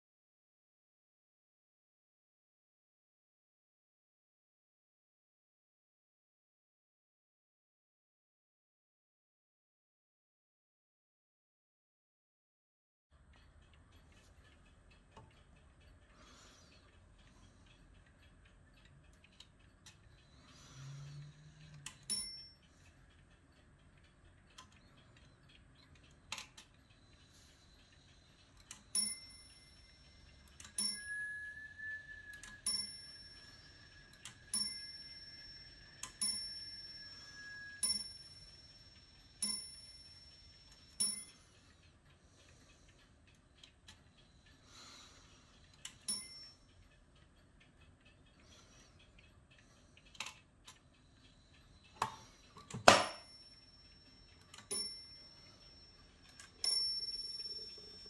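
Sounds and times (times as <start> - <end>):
clock ticking softly: 13.1 - 58.0
clock striking: 20.2 - 23.1, 28.6 - 41.7, 45.9 - 46.7, 51.8 - 58.0.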